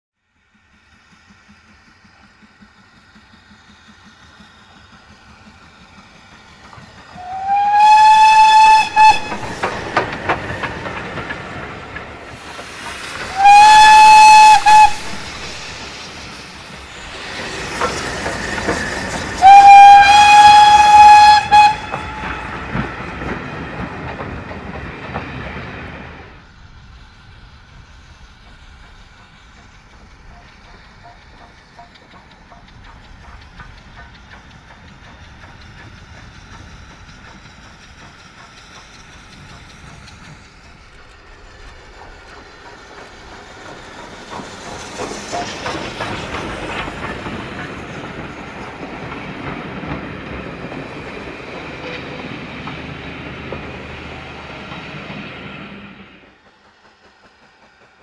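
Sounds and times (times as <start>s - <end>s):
train wheels clicking over rail joints: 0.4s - 58.0s
steam whistle blasts: 7.2s - 9.8s, 13.3s - 15.8s, 19.0s - 22.7s.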